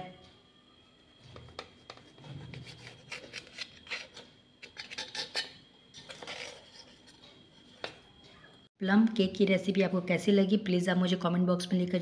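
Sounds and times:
knife scraping on metal plate: 1.9s - 7.8s.

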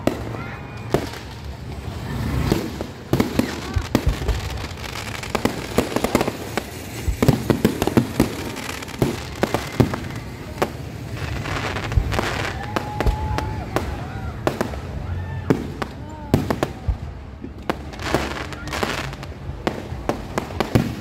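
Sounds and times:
fireworks bursting and crackling: 0.0s - 21.0s.

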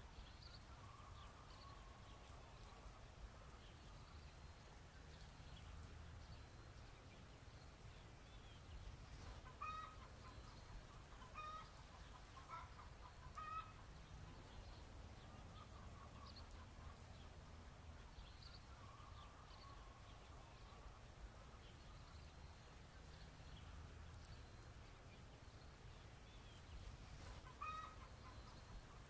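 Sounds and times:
chickens clucking: 9.3s - 14.6s, 27.2s - 29.0s.

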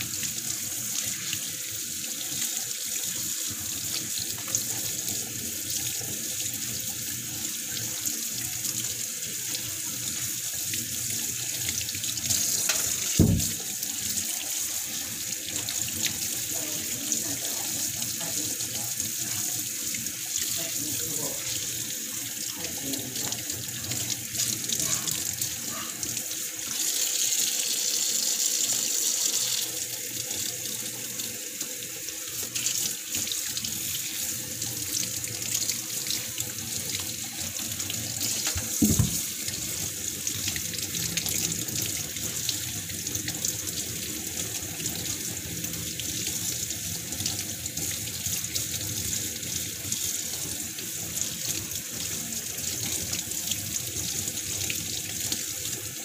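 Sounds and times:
faucet water splashing into sink: 0.0s - 56.0s
thump: 13.2s - 13.6s, 38.8s - 39.2s.

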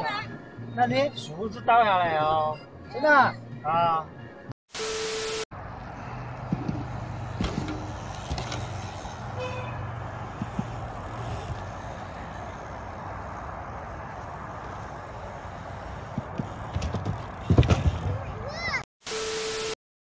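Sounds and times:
wind: 0.0s - 19.8s
distant traffic: 5.5s - 18.8s.

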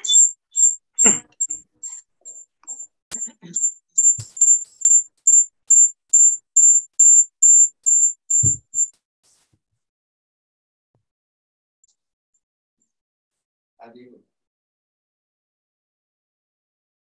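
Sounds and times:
high-pitched electronic beep: 0.0s - 8.9s.

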